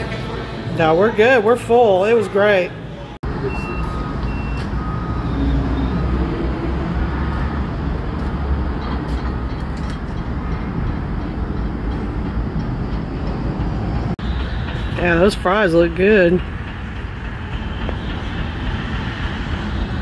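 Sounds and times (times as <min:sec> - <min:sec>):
low vehicle rumble: 0:03.2 - 0:15.2
short high beeps: 0:03.4 - 0:05.7.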